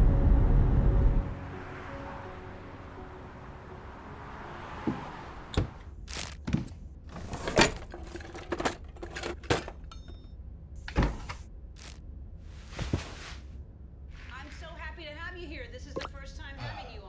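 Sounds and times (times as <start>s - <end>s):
sharp knocks and clunks: 4.8s - 8.0s.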